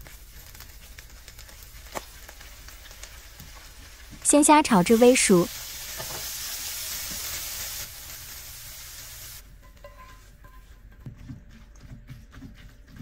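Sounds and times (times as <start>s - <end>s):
shrimp sizzling in frying pan: 0.0s - 9.4s.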